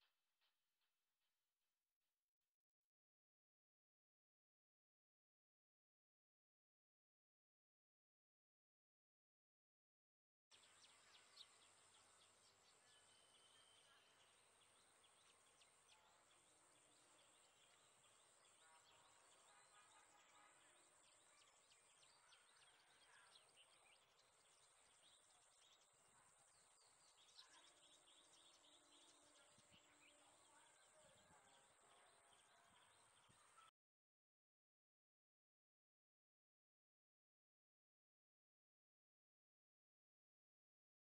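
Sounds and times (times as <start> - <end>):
small birds chirping: 10.5 - 33.7.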